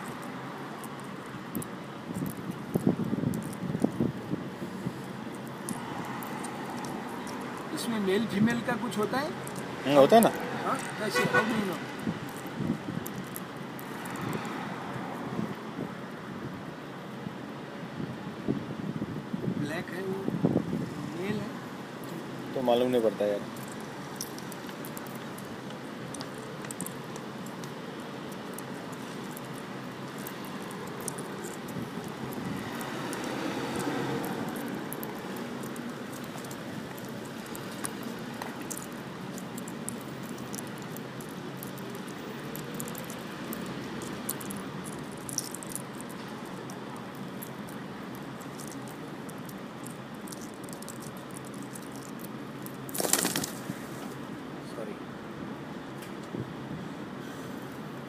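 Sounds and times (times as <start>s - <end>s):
beaks pecking on chips and stone: 0.0s - 4.4s, 5.0s - 14.7s, 22.0s - 53.7s
background noise: 0.0s - 58.0s
street noise hum: 0.0s - 58.0s.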